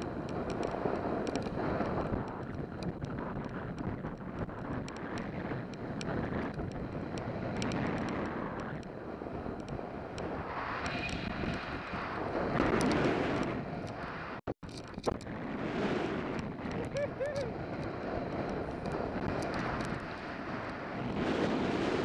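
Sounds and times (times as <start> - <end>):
sharp ticks: 0.0 - 11.6, 16.3 - 20.0
board sliding over snow: 0.0 - 14.4, 15.3 - 22.0
wind rushing over microphone: 0.0 - 22.0.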